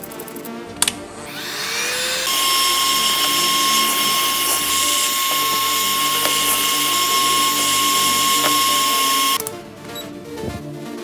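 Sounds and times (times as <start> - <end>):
rotary tool high whine: 1.2 - 9.4.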